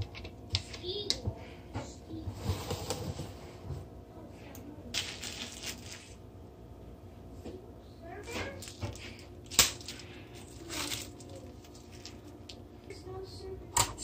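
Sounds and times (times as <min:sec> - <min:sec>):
handling rustle: 0:05.0 - 0:06.2, 0:08.2 - 0:12.6.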